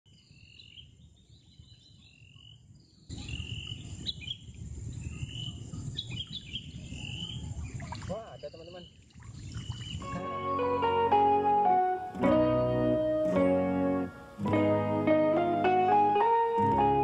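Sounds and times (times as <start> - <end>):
birds and insects chirping: 0.1 - 10.2.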